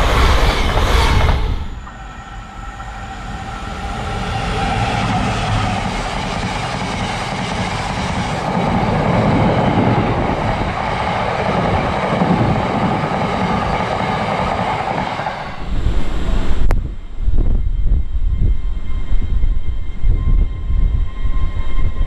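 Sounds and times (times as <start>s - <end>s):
train wheels rushing on rail: 0.0s - 22.0s
uneven low rumble: 15.3s - 22.0s.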